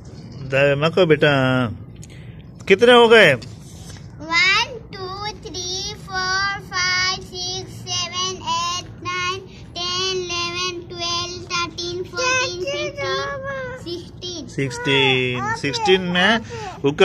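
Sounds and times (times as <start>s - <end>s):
girl singing: 4.3s - 15.9s.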